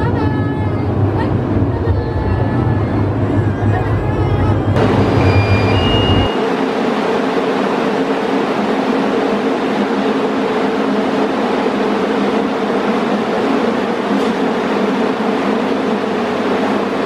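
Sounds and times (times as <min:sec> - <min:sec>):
deep rumble: 0:00.0 - 0:06.4
funicular car mechanical hum: 0:00.0 - 0:17.0.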